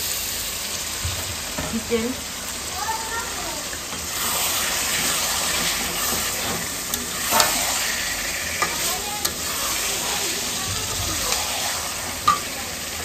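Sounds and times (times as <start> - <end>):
chicken sizzling in oil: 0.0 - 13.0
metal spatula scraping a pan: 3.9 - 12.7.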